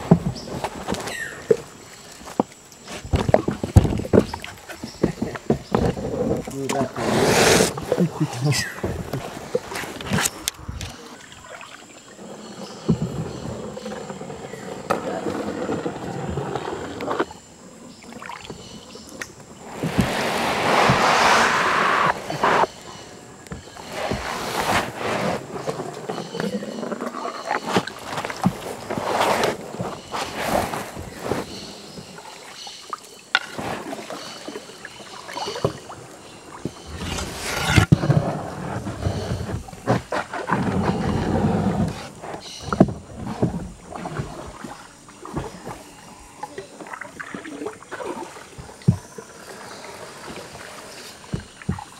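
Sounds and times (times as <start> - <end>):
paddle knocking canoe hull: 0.0 - 10.8, 18.1 - 32.5, 33.3 - 51.9
water swish: 0.0 - 51.9
paddle knocking against hull: 2.3 - 10.8, 19.6 - 22.8, 51.2 - 51.9
splashing swish: 19.7 - 22.8.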